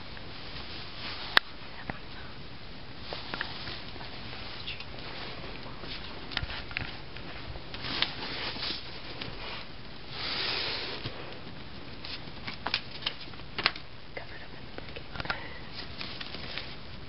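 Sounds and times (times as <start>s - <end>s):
handling rustle: 2.9s - 13.9s, 15.6s - 17.0s.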